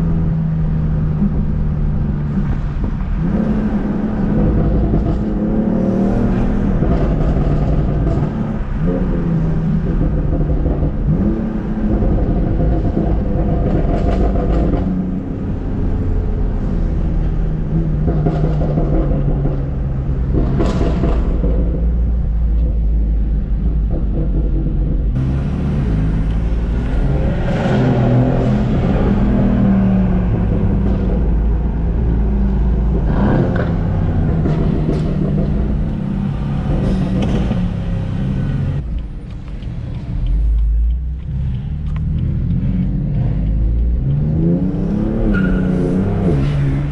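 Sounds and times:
car engine revving through gears: 0:00.0 - 0:46.9.

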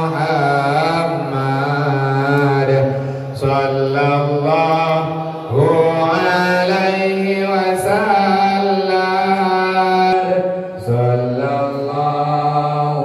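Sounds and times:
man chanting devotional praise: 0:00.0 - 0:13.0.

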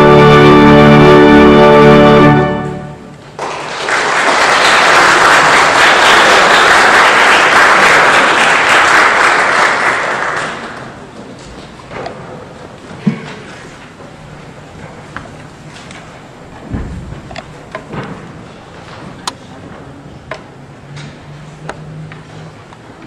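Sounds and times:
church organ chord: 0:00.0 - 0:03.2
audience applause: 0:03.3 - 0:11.1.

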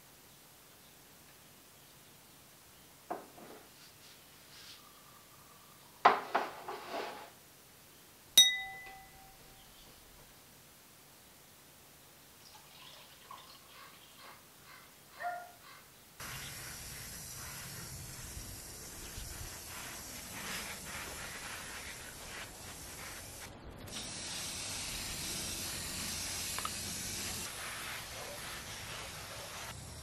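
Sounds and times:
hose spray nozzle hissing: 0:16.2 - 0:30.0.

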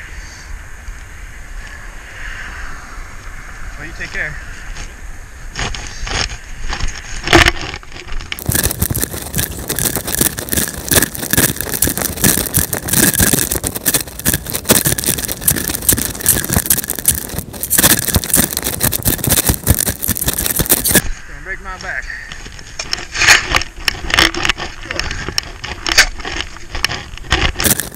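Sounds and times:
fabric rustling on microphone: 0:05.5 - 0:21.1.

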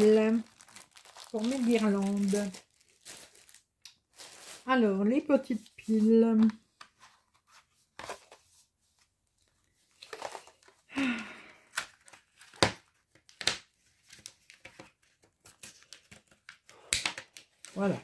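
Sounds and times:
plastic crinkling: 0:00.0 - 0:04.8.

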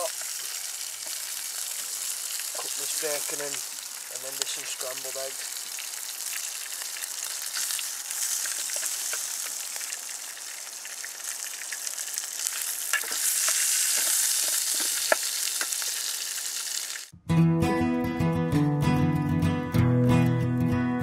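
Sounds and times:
bacon sizzling and crackling: 0:00.0 - 0:17.1
acoustic guitar music: 0:17.1 - 0:21.0.

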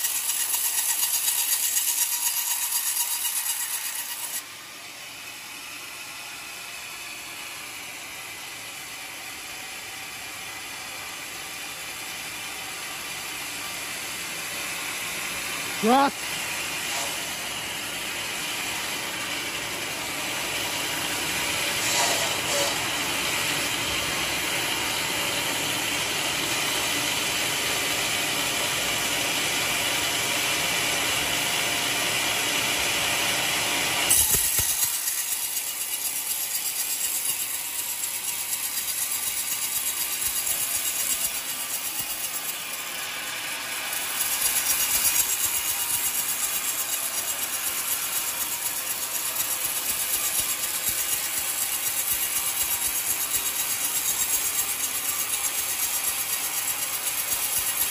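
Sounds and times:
band saw sawing log: 0:00.0 - 0:04.5, 0:20.4 - 0:24.0, 0:34.1 - 0:57.9.

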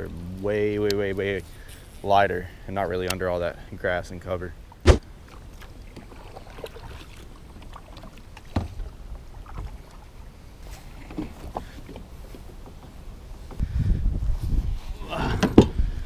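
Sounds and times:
water splashing: 0:04.6 - 0:12.7
kayak paddle strokes: 0:04.7 - 0:13.7.

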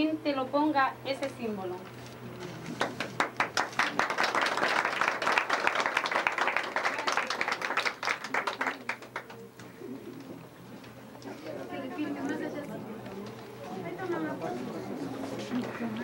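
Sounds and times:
crowd applauding: 0:02.7 - 0:09.5.

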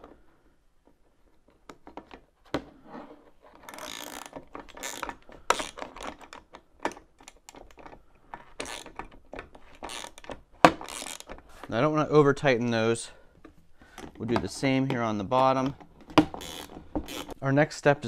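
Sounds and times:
nut clicking and rattling on bolt: 0:03.6 - 0:11.4, 0:15.6 - 0:17.4.

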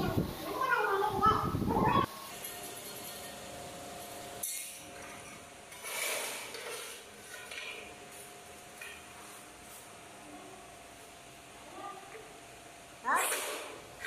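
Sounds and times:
tool scraping floor: 0:04.0 - 0:09.9, 0:13.1 - 0:14.0.

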